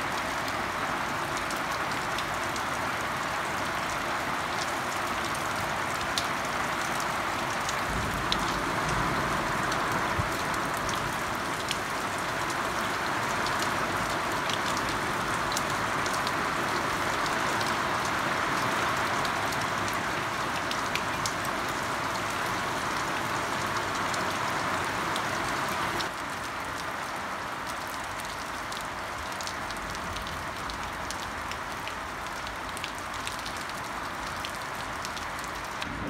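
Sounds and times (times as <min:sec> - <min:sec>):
raindrops ticking close by: 0:00.0 - 0:36.0
steady rain falling: 0:00.0 - 0:36.0.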